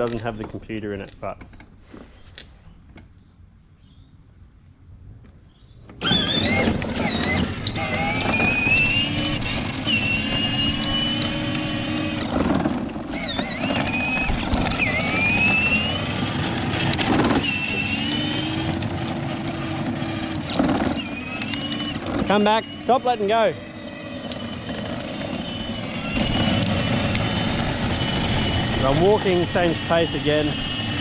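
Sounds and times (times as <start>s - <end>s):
toy car motor whining: 5.9s - 31.0s.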